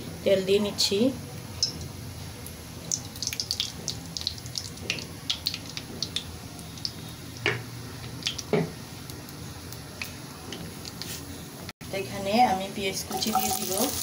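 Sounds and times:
oil ticking and crackling: 0:01.4 - 0:11.3, 0:13.1 - 0:14.0.

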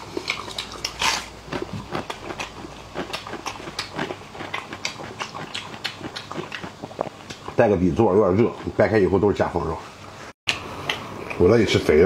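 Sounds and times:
wet chewing smacks: 0:00.1 - 0:07.6.

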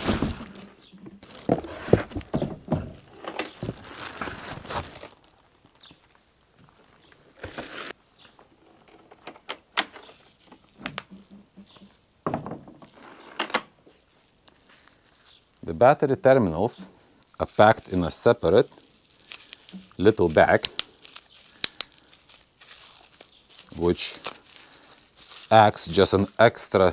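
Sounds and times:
plastic wrapping rustling: 0:00.0 - 0:26.9
clicks and thuds of handling: 0:07.4 - 0:13.7.

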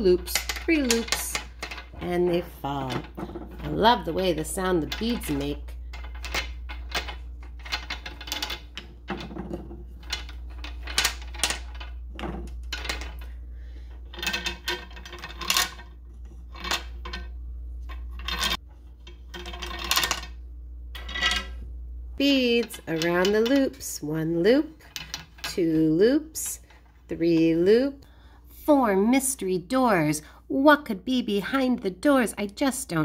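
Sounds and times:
wooden beads clacking on wire: 0:00.0 - 0:21.6.

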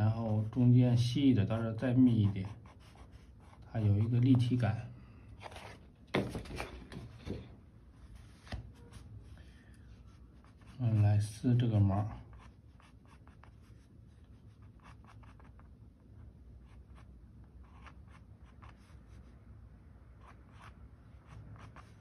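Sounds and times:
pencil scratching on paper: 0:00.0 - 0:04.5, 0:10.1 - 0:15.7, 0:16.6 - 0:19.3, 0:20.2 - 0:22.0.

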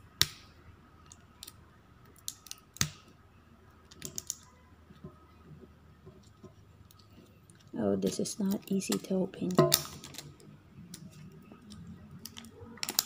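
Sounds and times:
sharp clicks and light crackles: 0:01.0 - 0:03.1, 0:03.8 - 0:04.5, 0:06.2 - 0:13.0
fingernails picking plastic wrapping: 0:06.9 - 0:10.3.

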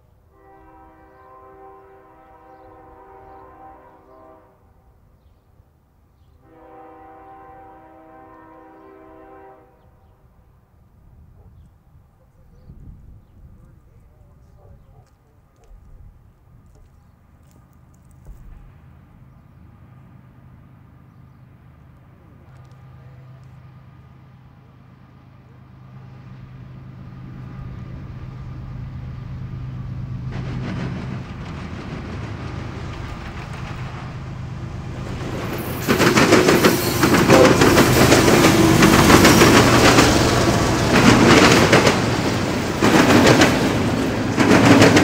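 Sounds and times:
locomotive air horn blasts: 0:00.3 - 0:04.9, 0:06.4 - 0:10.0, 0:36.6 - 0:39.5
vehicle engine humming: 0:16.4 - 0:45.0
faint clicks: 0:21.9 - 0:23.6.

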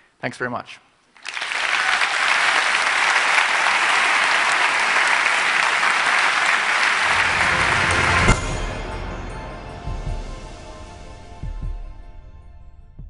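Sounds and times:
audience applauding: 0:01.2 - 0:08.8
deep throbbing outro music: 0:07.0 - 0:13.0.

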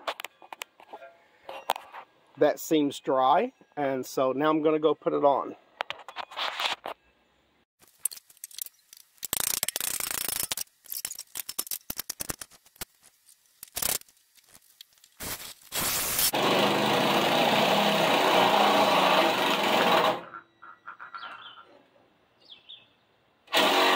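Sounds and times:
cordless drill running: 0:16.3 - 0:20.2, 0:23.5 - 0:23.9.

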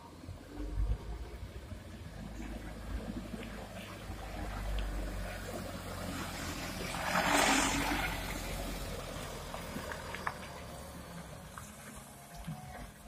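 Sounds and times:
diesel truck engine rumbling: 0:00.0 - 0:13.0.

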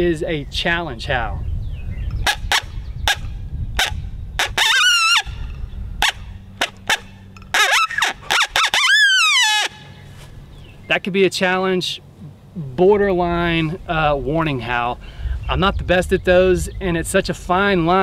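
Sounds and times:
coyote call wavering howls: 0:03.8 - 0:05.3, 0:06.9 - 0:09.9
coyote call barks: 0:06.0 - 0:09.8.

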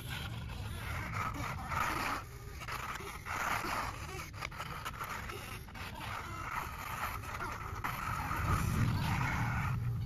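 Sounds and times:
electric motors and gearing whirring: 0:00.0 - 0:10.0
low rumble: 0:08.0 - 0:10.0.

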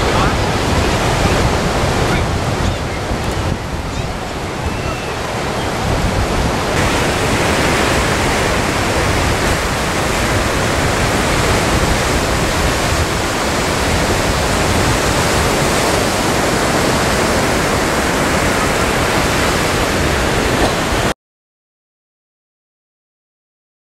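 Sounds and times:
surf breaking on beach: 0:00.0 - 0:21.1.

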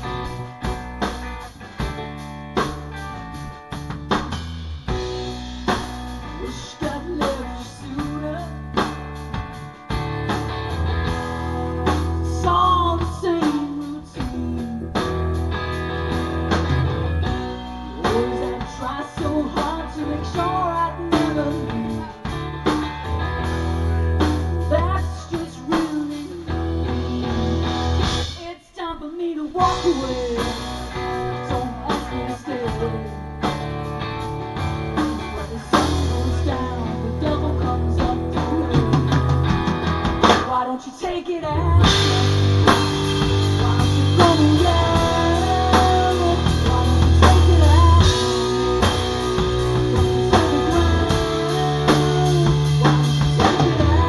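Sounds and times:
distorted electric guitar: 0:00.0 - 0:28.6, 0:29.6 - 0:40.7, 0:41.5 - 0:54.0
bass guitar: 0:00.0 - 0:28.8, 0:29.4 - 0:54.0
drum kit: 0:00.0 - 0:54.0
woman singing: 0:06.3 - 0:09.0, 0:12.2 - 0:15.2, 0:17.8 - 0:22.4, 0:24.2 - 0:27.7, 0:28.3 - 0:33.6, 0:35.0 - 0:39.6, 0:40.2 - 0:54.0.

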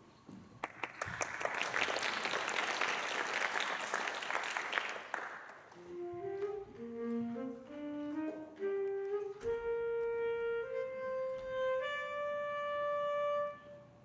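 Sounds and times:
saxophone solo: 0:05.7 - 0:14.0.

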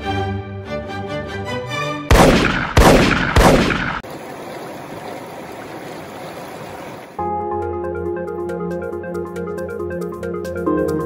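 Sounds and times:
river rushing over rocks: 0:04.1 - 0:07.2.

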